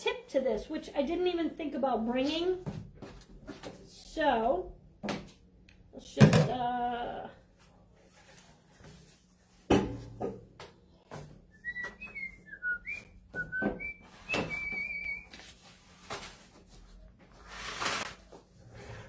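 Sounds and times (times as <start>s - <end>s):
person whistling: 11.5s - 15.3s.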